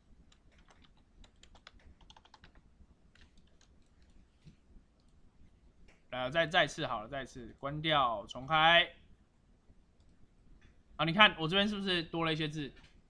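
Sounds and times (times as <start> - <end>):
faint keyboard typing: 0.0 - 5.2, 10.0 - 10.8.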